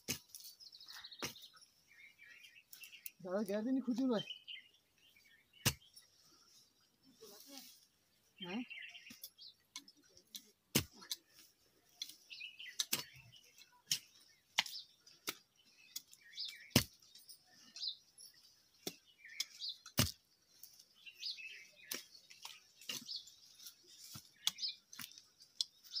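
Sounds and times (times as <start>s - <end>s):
hoe striking earth: 0.0s - 0.5s, 5.6s - 6.0s, 10.3s - 11.3s, 12.0s - 17.9s, 18.8s - 20.8s, 21.8s - 23.4s
small birds chirping: 0.0s - 26.0s.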